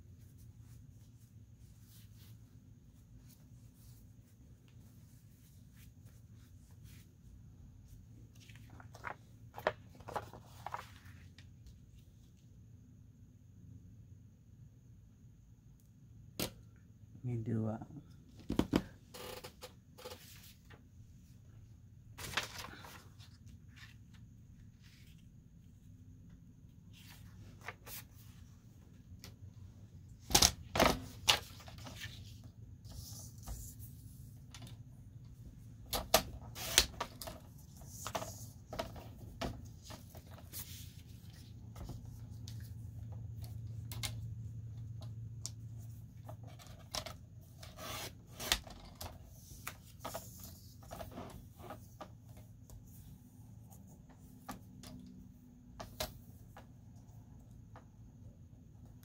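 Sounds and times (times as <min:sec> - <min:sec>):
paper sliding and rubbing: 0:08.2 - 0:11.4, 0:26.9 - 0:28.5, 0:31.3 - 0:34.3, 0:36.4 - 0:42.8, 0:47.4 - 0:48.7.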